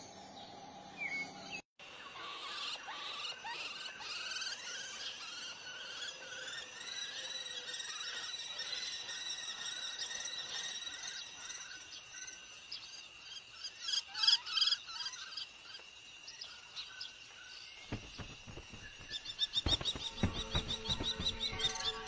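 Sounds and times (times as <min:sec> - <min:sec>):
high insect trill: 0:02.9 - 0:22.0
low knocks: 0:17.9 - 0:22.0.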